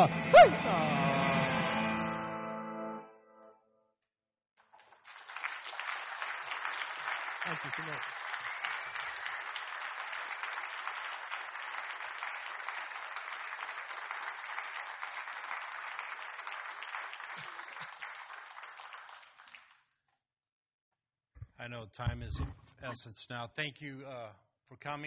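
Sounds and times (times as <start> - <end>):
audience applauding: 4.6 - 19.8.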